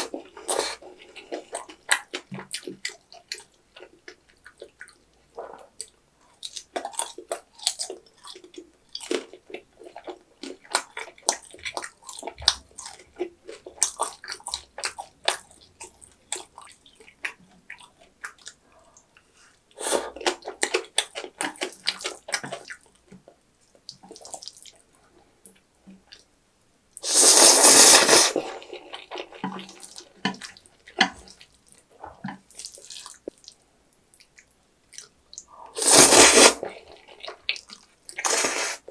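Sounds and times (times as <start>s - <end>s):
wet chewing and mouth smacking: 0.0s - 19.3s, 20.1s - 26.3s, 28.4s - 35.8s, 36.6s - 38.3s
noodle slurping: 27.0s - 30.0s, 35.7s - 37.4s, 38.2s - 38.9s.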